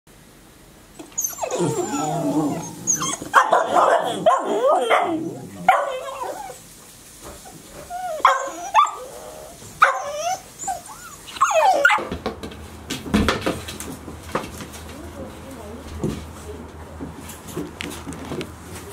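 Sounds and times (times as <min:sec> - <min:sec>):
puppies whining and yipping: 0:01.0 - 0:06.6, 0:07.4 - 0:12.1.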